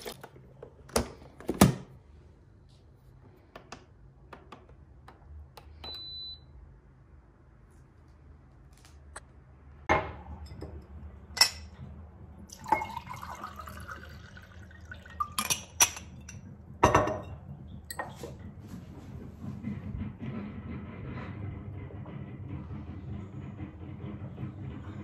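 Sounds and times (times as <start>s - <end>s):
water pouring into a glass: 12.5s - 15.4s
glass clinking and knocking: 12.5s - 18.2s.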